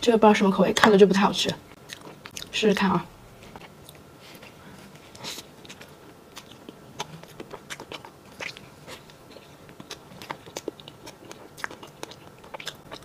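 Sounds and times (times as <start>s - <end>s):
chewing mouth sounds: 1.8s - 2.5s, 3.4s - 13.0s.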